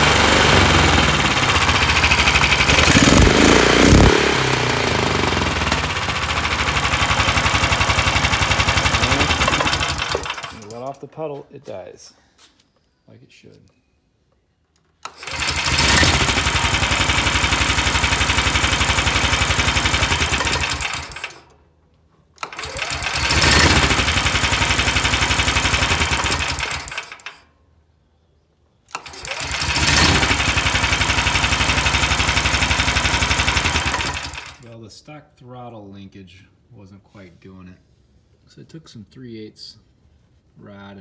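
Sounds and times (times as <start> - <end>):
engine cranking and running: 0.0 - 11.0, 15.0 - 21.6, 22.4 - 27.4, 28.9 - 34.7
starter generator cranking: 0.0 - 11.0, 14.8 - 21.5, 22.4 - 27.4, 28.9 - 34.7.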